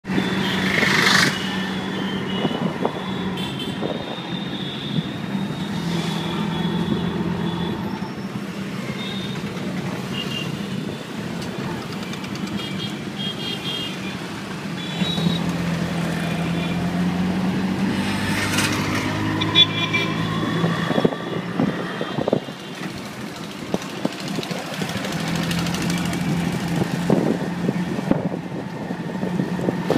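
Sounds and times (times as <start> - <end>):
auto rickshaw engine running: 0.0 - 29.9
street traffic: 0.0 - 29.9.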